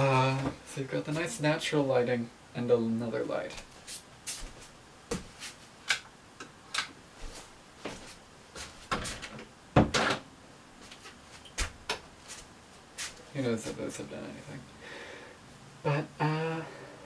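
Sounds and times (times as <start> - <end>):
clicks and knocks of handling things: 5.9 - 7.0.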